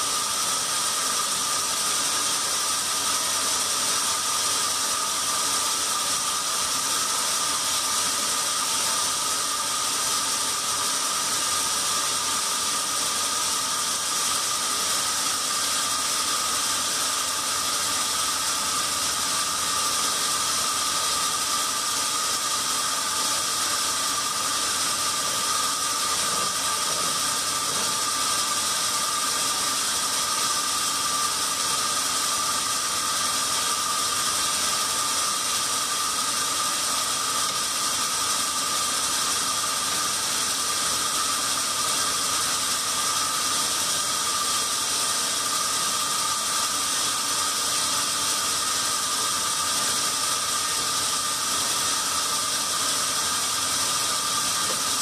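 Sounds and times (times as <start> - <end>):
band saw running: 0.0 - 55.0.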